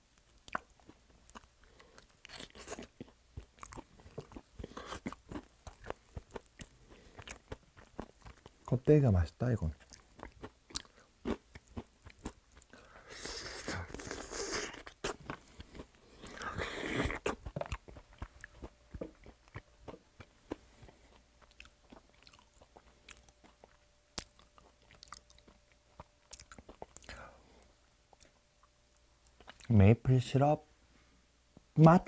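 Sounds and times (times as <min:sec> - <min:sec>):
chewing crispy chicken: 0:00.2 - 0:08.7, 0:09.5 - 0:27.3, 0:29.2 - 0:29.8.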